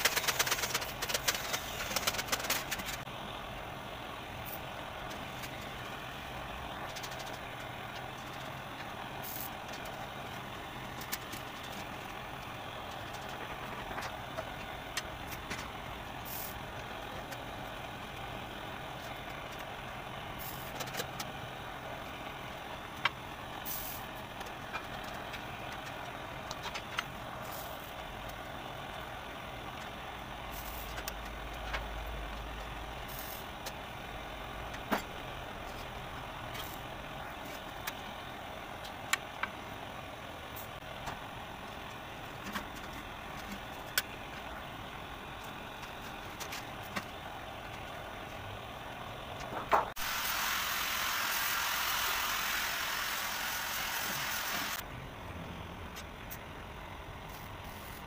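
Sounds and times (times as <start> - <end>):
louder steady hiss: 23.6 - 24.2, 49.7 - 54.8.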